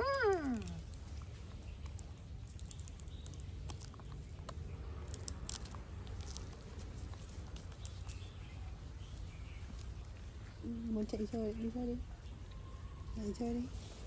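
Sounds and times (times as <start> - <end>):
monkey licking and chewing: 0.0 - 10.4
steady low rumble: 0.0 - 14.0.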